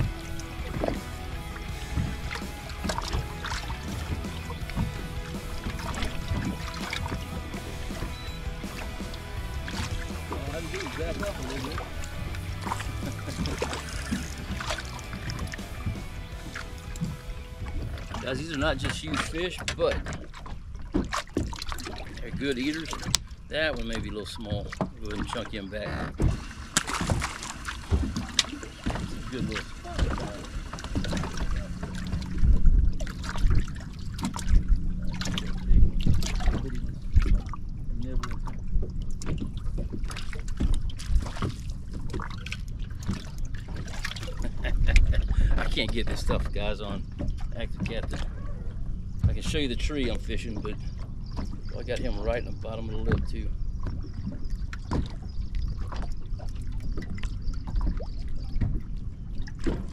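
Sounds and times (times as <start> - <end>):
water lapping against boat hull: 0.0 - 59.9
steady low hum: 23.3 - 59.9
wind rumble on microphone: 29.0 - 59.9.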